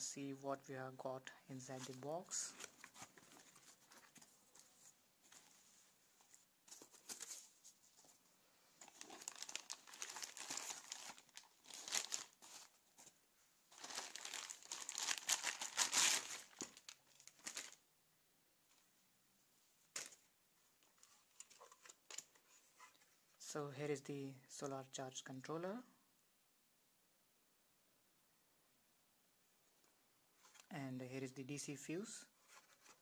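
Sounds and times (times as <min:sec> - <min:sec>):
plastic packaging crinkling: 0:08.8 - 0:13.1, 0:13.7 - 0:17.8.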